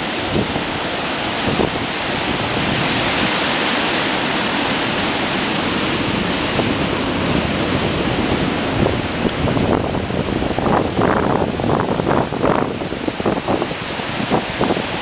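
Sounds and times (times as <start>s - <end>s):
surf breaking on a beach: 0.0s - 15.0s
wind buffeting microphone: 0.0s - 15.0s.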